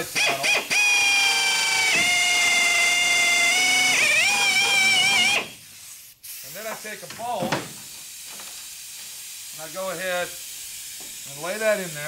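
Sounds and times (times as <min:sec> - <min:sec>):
power drill drilling fiberglass: 0:00.0 - 0:05.6.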